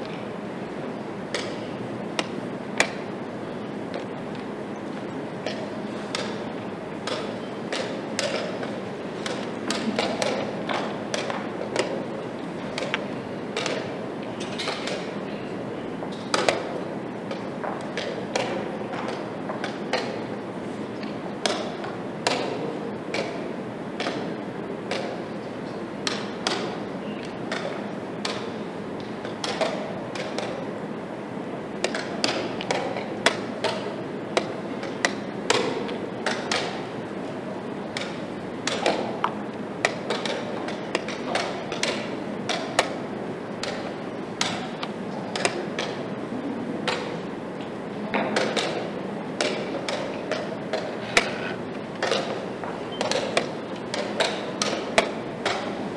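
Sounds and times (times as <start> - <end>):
steady background noise: 0.0 - 55.9.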